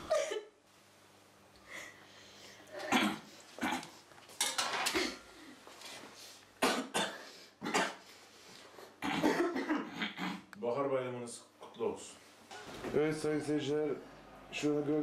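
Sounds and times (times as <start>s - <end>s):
man coughing: 9.0s - 10.4s.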